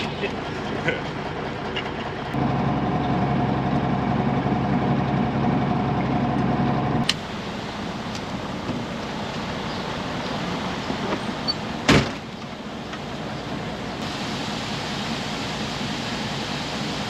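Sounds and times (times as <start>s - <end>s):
truck engine idling: 0.0s - 17.0s
truck door slamming: 11.0s - 12.3s.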